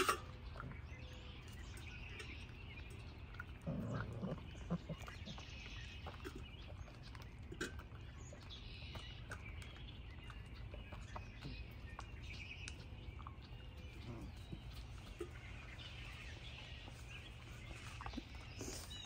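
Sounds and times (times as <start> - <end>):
puppies crunching kibble: 0.0 - 19.0
low puppy vocalisation: 3.1 - 9.7, 13.1 - 19.0.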